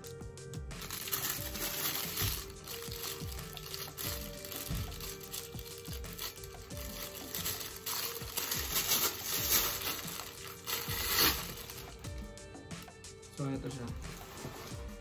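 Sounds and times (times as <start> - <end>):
soft background music: 0.0 - 15.0
plastic wrapping crinkling: 0.8 - 12.1.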